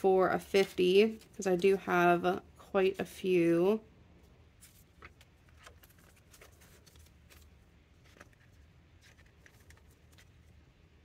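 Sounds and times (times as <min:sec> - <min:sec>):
plastic envelope crackling: 0:04.6 - 0:10.6
paper banknotes rustling: 0:04.6 - 0:10.7.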